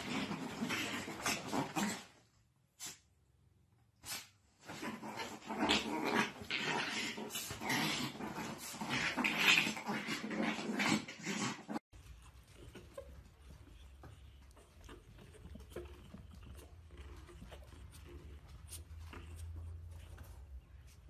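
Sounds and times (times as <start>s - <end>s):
dogs growling: 0.0s - 2.2s, 4.6s - 20.6s
puppy playing on bedding: 11.9s - 21.0s.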